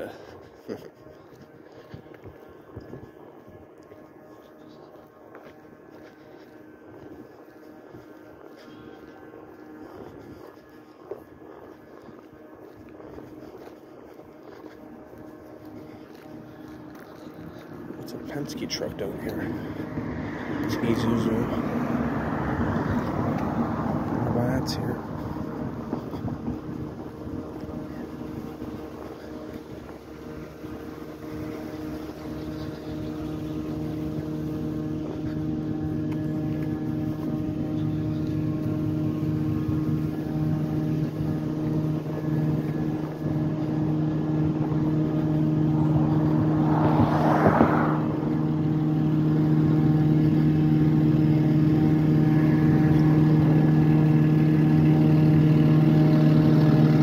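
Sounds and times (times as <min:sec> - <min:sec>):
truck engine idling: 0:14.8 - 0:57.0.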